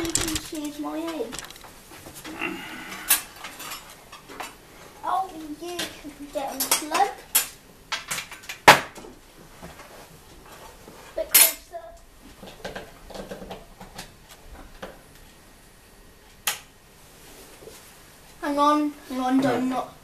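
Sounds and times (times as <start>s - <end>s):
utensils clattering: 0.0s - 1.7s.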